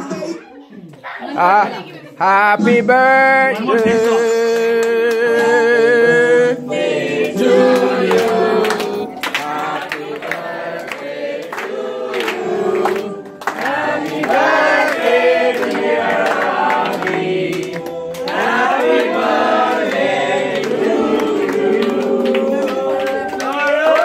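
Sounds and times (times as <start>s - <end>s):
group singing birthday song: 1.2s - 24.0s
hand clapping: 7.2s - 24.0s.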